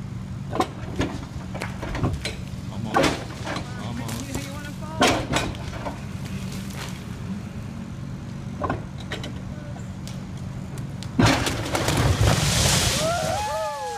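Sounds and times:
diesel excavator engine running: 0.0s - 13.9s
loud crash of collapsing bridge: 11.2s - 13.9s.

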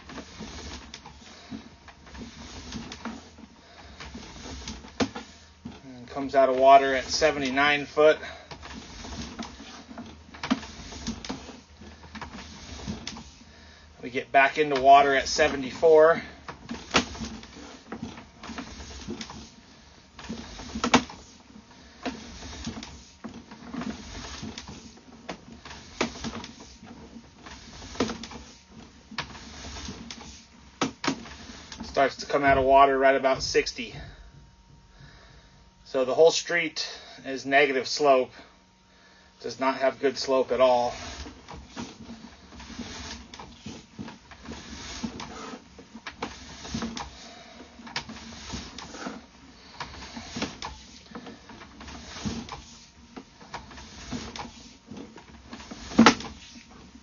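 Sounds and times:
cable clicking and rattling: 0.0s - 35.2s, 39.4s - 57.0s
low steady hum: 0.0s - 57.0s
cable clicks and knocks: 14.4s - 34.9s.

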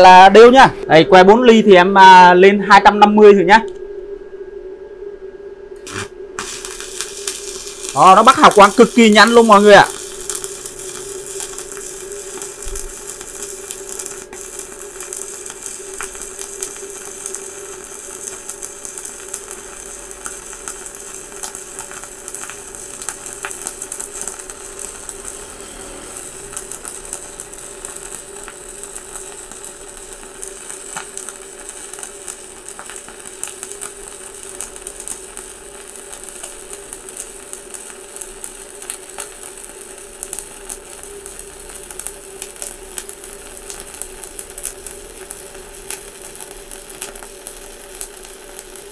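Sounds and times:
welding arc crackle: 0.0s - 1.0s, 5.8s - 48.9s
welder hum: 0.0s - 48.9s.

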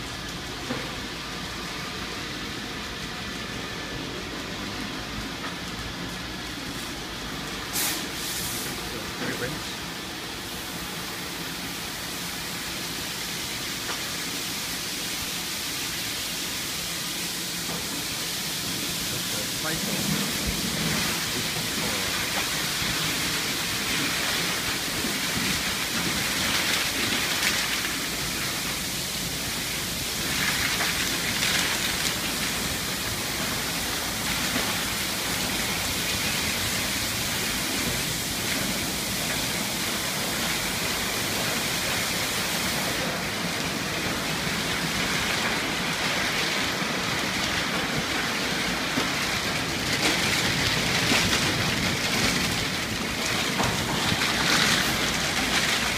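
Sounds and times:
water spray hissing on car: 0.0s - 55.9s.

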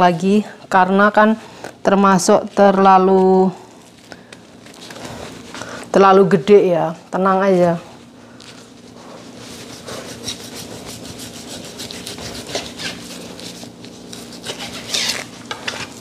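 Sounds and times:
knife sawing through raw meat: 9.4s - 16.0s.

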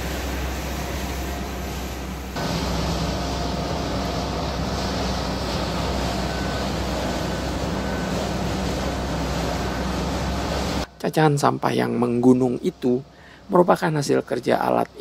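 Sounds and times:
diesel engine drone: 0.0s - 15.0s
faint high beeps: 5.8s - 8.5s.

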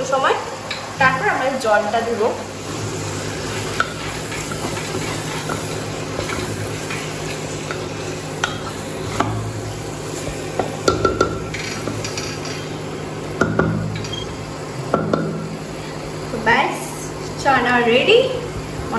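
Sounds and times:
light sizzle: 0.0s - 18.9s
steady low hum: 0.0s - 18.9s
spatula scraping food in a pan: 3.4s - 9.4s.

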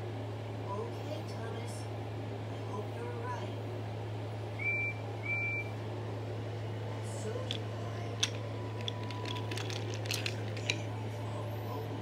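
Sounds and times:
steady low hum: 0.0s - 12.0s
toy train wheels clicking: 8.2s - 10.8s.

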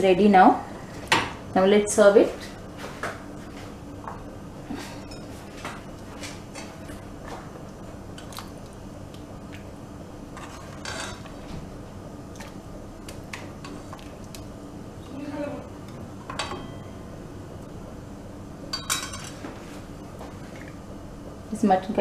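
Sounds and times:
low hum: 2.5s - 21.6s
ladle scraping metal pot: 10.4s - 11.4s.

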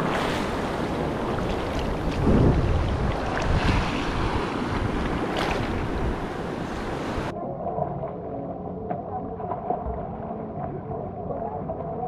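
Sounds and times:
surf washing over sand: 0.0s - 7.3s
wind buffeting microphone: 0.0s - 7.3s.

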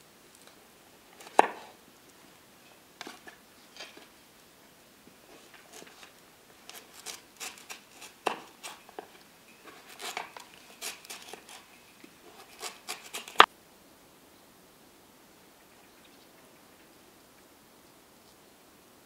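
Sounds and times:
knife crunching through carrot: 5.4s - 11.7s, 12.3s - 13.5s.

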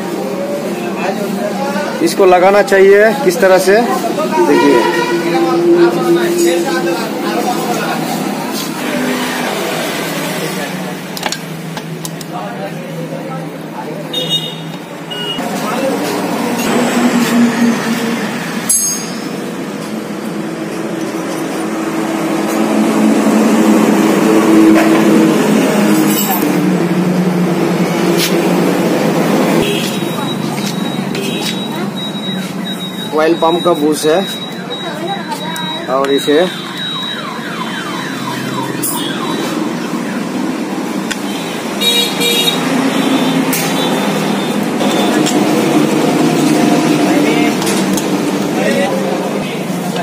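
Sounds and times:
street traffic rumble: 0.0s - 50.0s
short vehicle horn toots: 4.4s - 5.4s
vehicle alarm falling tones: 14.2s - 15.4s, 29.6s - 40.6s
vehicle engine droning: 15.4s - 35.0s, 42.6s - 50.0s.

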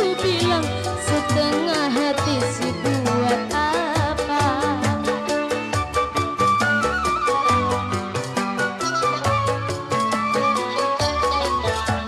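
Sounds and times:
drums keeping a beat: 0.0s - 12.0s
wavering melody line: 4.2s - 12.0s.

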